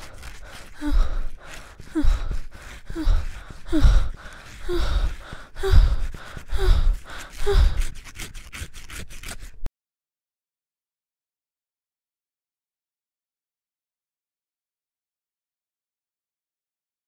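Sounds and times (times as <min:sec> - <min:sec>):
person breathing hard in gasps: 0:00.0 - 0:09.5.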